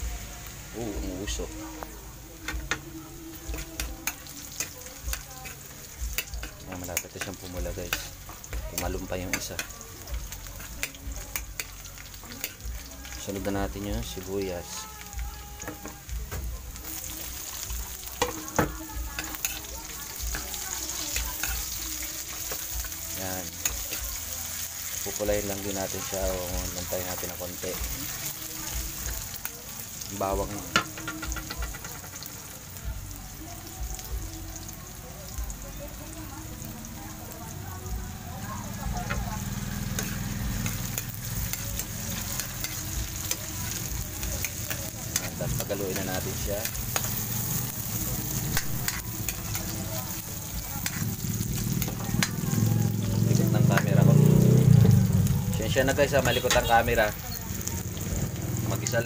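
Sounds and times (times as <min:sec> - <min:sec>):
food sizzling in hot oil: 0:00.0 - 0:59.0
metal ladle scraping a wok: 0:39.1 - 0:52.5.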